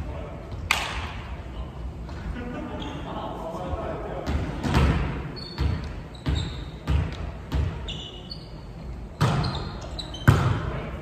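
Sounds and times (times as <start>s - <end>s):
shoe squeaks on floor: 2.8s - 3.1s, 5.3s - 6.8s, 7.6s - 10.6s
volleyball bouncing on wooden floor: 4.2s - 7.8s, 9.2s - 9.5s, 10.2s - 10.6s.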